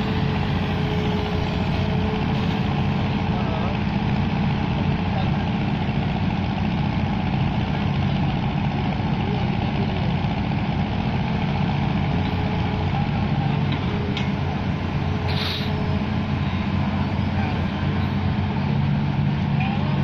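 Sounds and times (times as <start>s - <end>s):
excavator diesel engine running: 0.0s - 20.0s
brief hiss: 15.3s - 15.8s.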